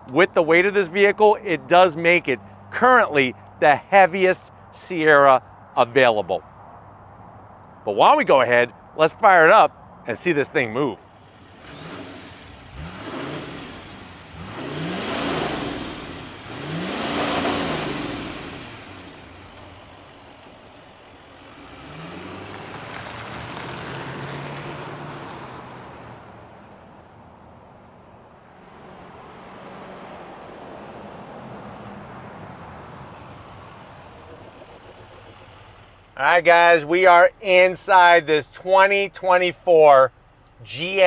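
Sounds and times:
diesel truck engine revving: 11.3 - 27.2, 28.2 - 39.3
truck driving off: 11.3 - 38.2.

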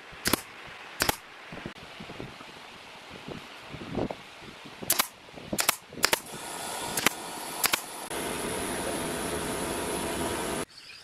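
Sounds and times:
sharp clicks: 0.2 - 1.2, 4.9 - 6.3, 7.0 - 7.9
steady machine whir: 6.3 - 10.7.

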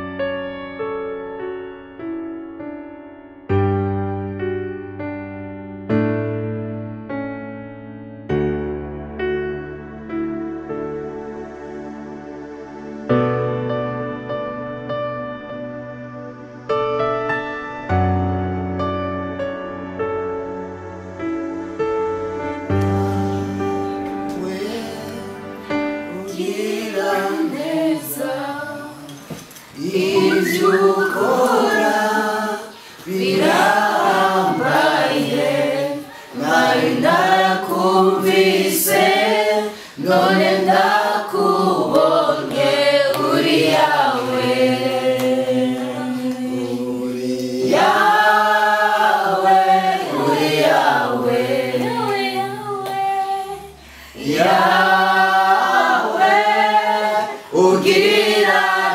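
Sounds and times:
group singing without instruments: 22.7 - 58.9.

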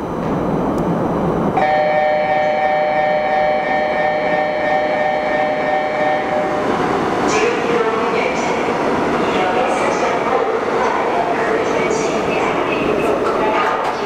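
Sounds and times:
subway train rumbling: 0.0 - 14.0
train horn chord: 1.6 - 6.6.

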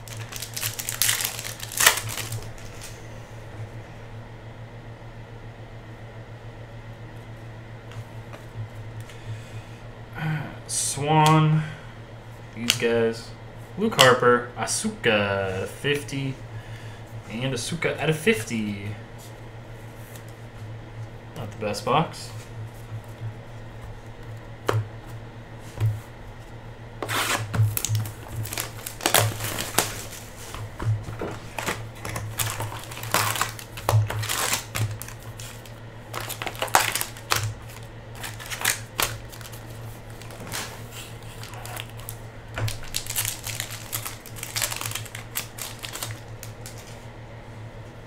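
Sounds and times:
cards being handled: 0.0 - 3.0, 27.0 - 47.1
foil wrapper crinkling and tearing: 0.0 - 3.0, 27.1 - 47.0.

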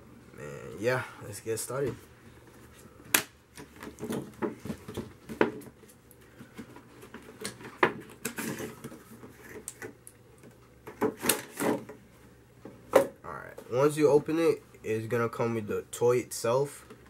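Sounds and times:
cardboard scraping and rustling: 6.4 - 9.7.

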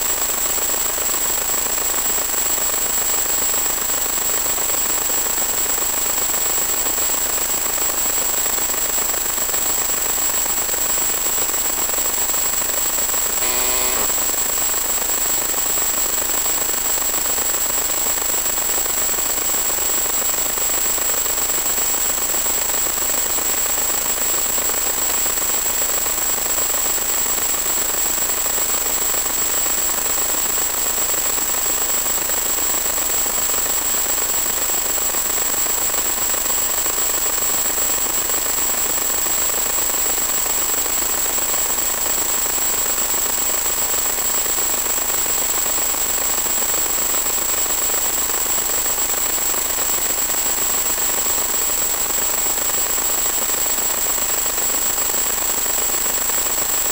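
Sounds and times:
static hiss: 13.2 - 14.4.

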